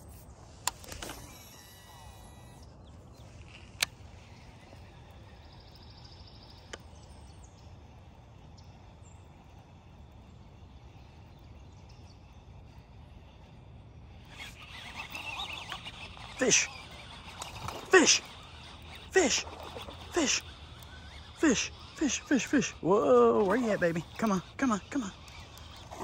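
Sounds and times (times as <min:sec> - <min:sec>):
faint high bird chirps: 0:14.3 - 0:26.0.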